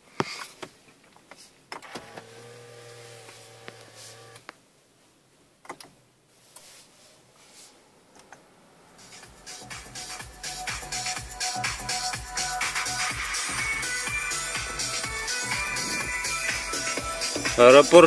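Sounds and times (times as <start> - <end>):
car radio playing music: 1.8 - 4.4, 8.2 - 18.0
small electric motor whirring: 2.0 - 4.4.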